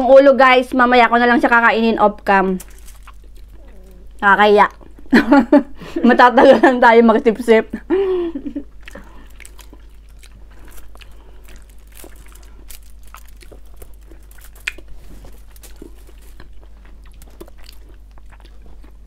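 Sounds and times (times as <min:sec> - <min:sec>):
chewing crunchy food: 0:02.2 - 0:05.2, 0:08.6 - 0:19.0.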